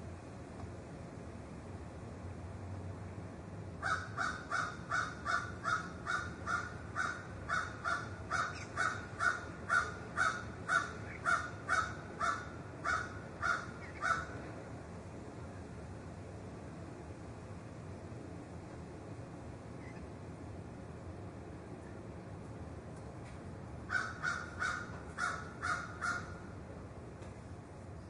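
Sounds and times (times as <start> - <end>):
crow cawing: 3.8 - 14.3, 23.9 - 26.4.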